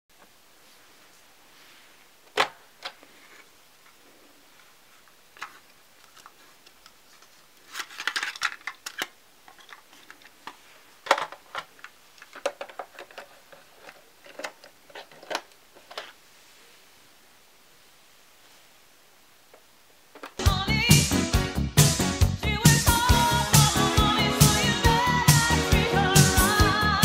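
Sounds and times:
cassette tape plastic clicks and rattles: 0:05.4 - 0:10.4.

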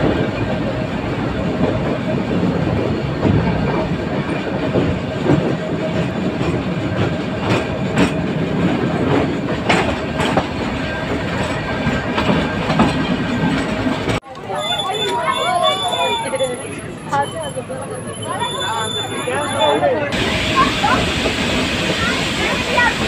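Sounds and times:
wheels clacking over rail joints: 0:00.0 - 0:15.5
train coach rumbling: 0:00.0 - 0:23.0.

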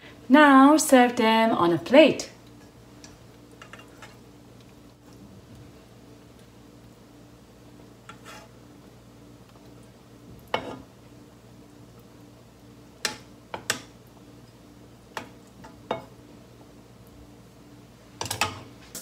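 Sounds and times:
low steady hum: 0:00.0 - 0:19.0
chopsticks clicking on pan: 0:13.0 - 0:13.9.

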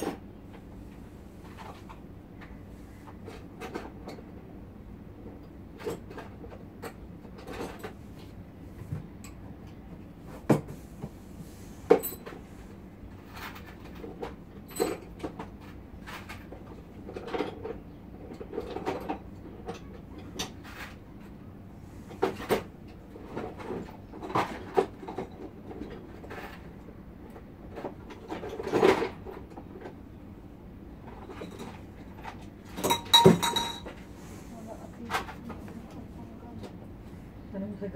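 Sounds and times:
objects knocking and clattering: 0:31.0 - 0:34.1.

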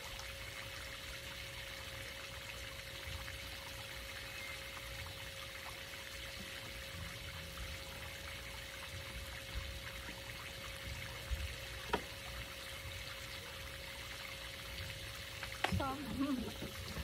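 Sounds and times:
faint steady hum: 0:00.0 - 0:17.0
fountain jet splashing into pool: 0:04.9 - 0:17.0.

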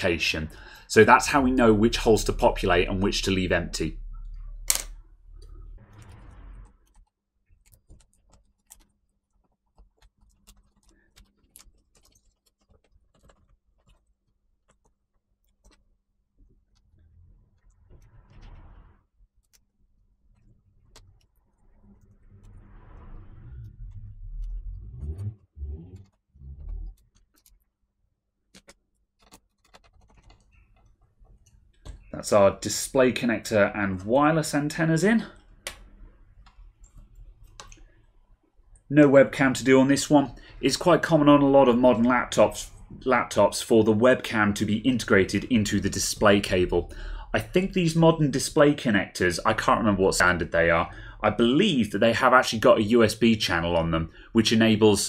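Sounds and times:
cables being handled: 0:06.7 - 0:18.6, 0:28.5 - 0:32.2.

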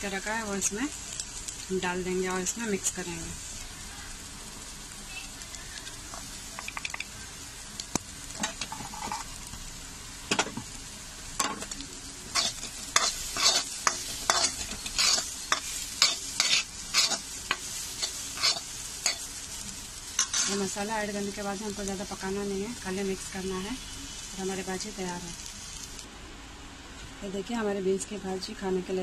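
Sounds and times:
green beans sizzling in a pan: 0:00.0 - 0:26.1
metal spoon scraping a pan: 0:08.4 - 0:09.3, 0:12.3 - 0:19.3, 0:20.1 - 0:20.7.

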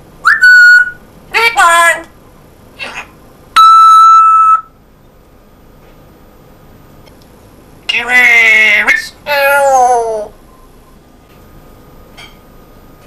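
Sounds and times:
parrot speech-like call: 0:02.8 - 0:04.2, 0:07.9 - 0:10.4
parrot mimicking beeps: 0:03.6 - 0:04.7.

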